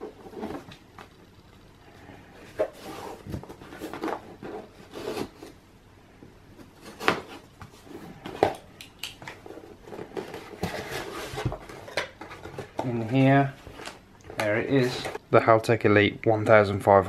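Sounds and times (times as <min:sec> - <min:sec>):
cardboard rubbing and scraping: 0:02.4 - 0:05.6, 0:09.4 - 0:13.1.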